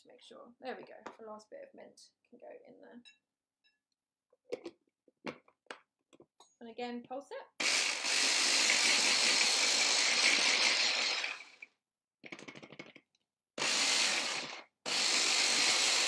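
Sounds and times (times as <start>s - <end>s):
food processor whining: 7.6s - 12.6s, 13.6s - 16.0s.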